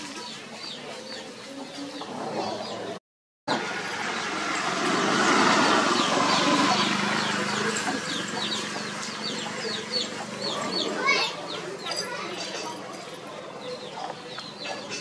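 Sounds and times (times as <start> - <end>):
motor vehicle passing: 2.0 - 11.3
small birds chirping: 5.5 - 15.0.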